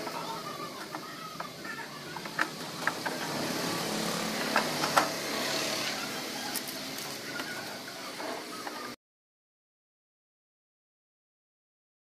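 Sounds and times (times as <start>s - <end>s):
steady background noise: 0.0s - 9.0s.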